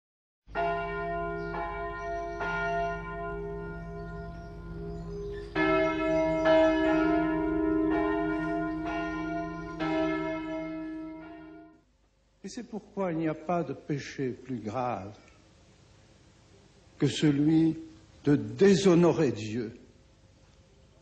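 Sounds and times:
church bells ringing: 0:00.5 - 0:11.8.

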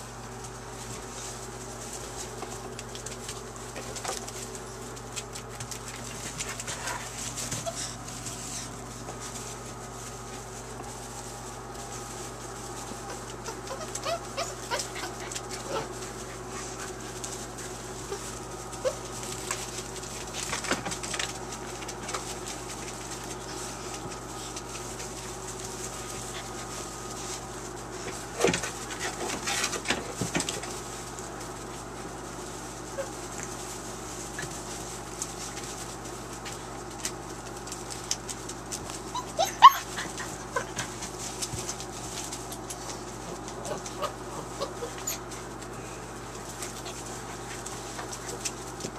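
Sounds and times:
low steady hum: 0:00.0 - 0:48.9
puppies scuffling in wood shavings: 0:00.0 - 0:48.9
puppies whimpering: 0:06.8 - 0:08.8, 0:13.1 - 0:16.9, 0:39.0 - 0:41.1, 0:43.6 - 0:45.4.

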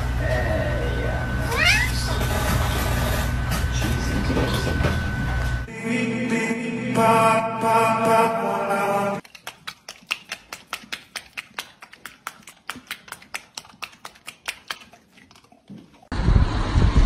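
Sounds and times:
loud rush of noise: 0:16.2 - 0:17.0.

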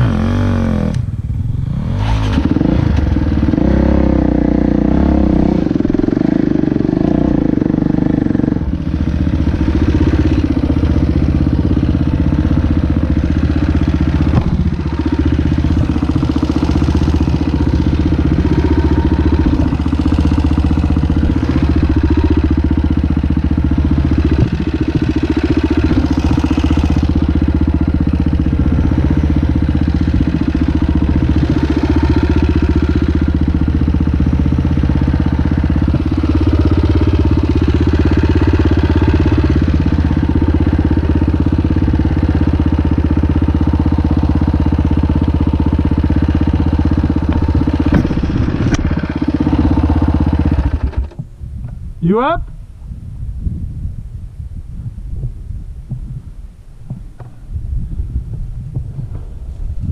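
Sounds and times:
dirt bike engine idling: 0:02.4 - 0:59.9.

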